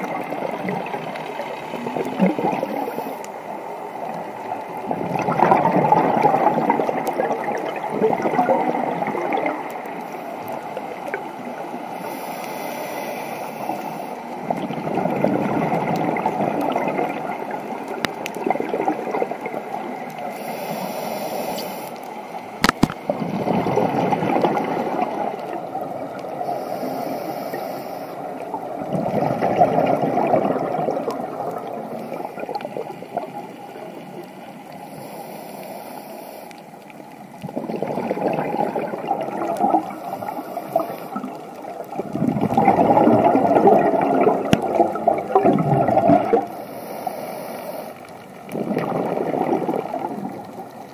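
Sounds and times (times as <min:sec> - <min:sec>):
exhaled bubbles underwater: 0:00.0 - 0:12.1, 0:13.6 - 0:20.8, 0:22.4 - 0:34.8, 0:36.9 - 0:46.8, 0:48.0 - 0:50.9
regulator inhalation hiss: 0:12.0 - 0:14.3, 0:20.3 - 0:22.0, 0:26.4 - 0:28.4, 0:34.8 - 0:36.8, 0:46.5 - 0:48.1.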